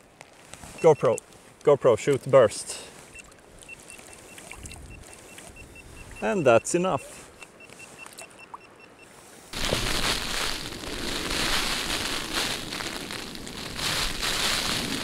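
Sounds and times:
heavy rain on tent fabric: 0:09.5 - 0:15.0.

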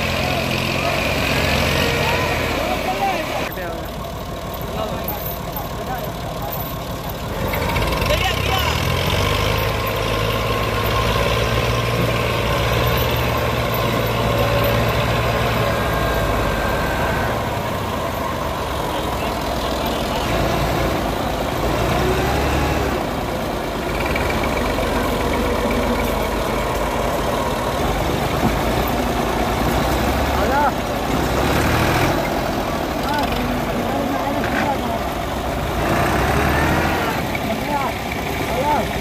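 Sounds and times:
diesel tractor engines idling: 0:00.0 - 0:39.0.

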